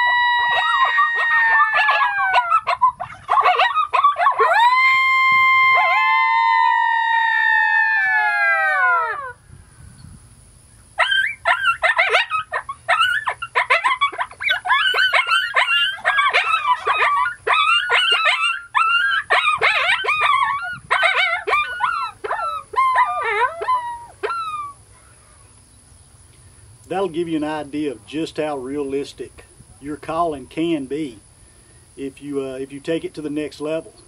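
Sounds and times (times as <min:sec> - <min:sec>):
coyote call yelps and cries: 0:00.0 - 0:09.4, 0:11.0 - 0:25.5.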